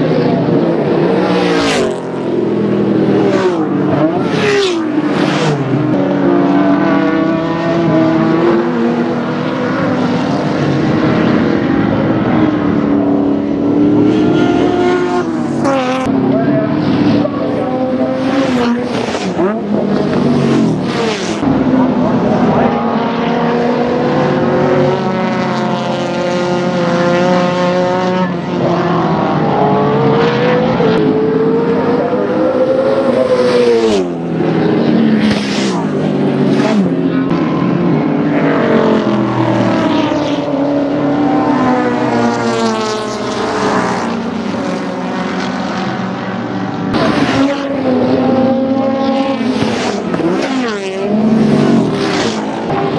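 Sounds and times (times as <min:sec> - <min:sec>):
race car engines: 0:00.0 - 0:52.9.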